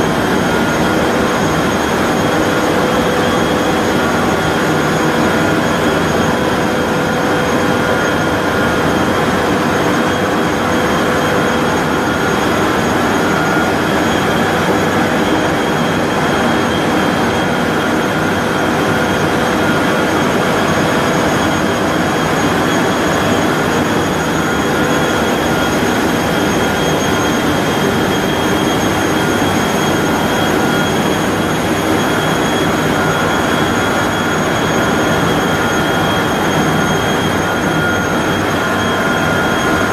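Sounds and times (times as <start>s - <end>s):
constant machine rumble: 0.0s - 39.9s
high steady machine whines: 0.0s - 39.9s.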